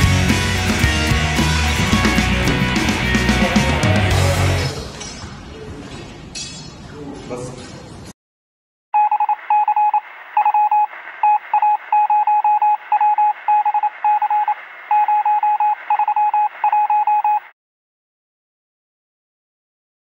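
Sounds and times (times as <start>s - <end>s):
electronic beeping tone: 9.0s - 17.5s.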